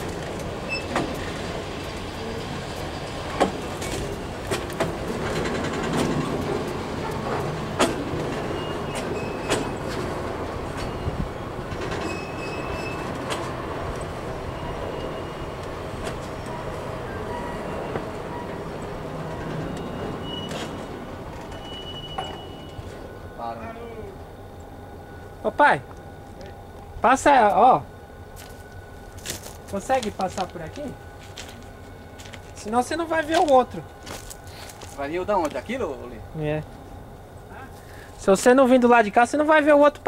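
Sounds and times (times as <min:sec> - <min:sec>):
steel wheels rumbling on rail: 0:00.0 - 0:40.0
high-pitched wheel squeals: 0:00.6 - 0:01.4, 0:08.5 - 0:10.0, 0:11.9 - 0:13.3, 0:19.3 - 0:23.8.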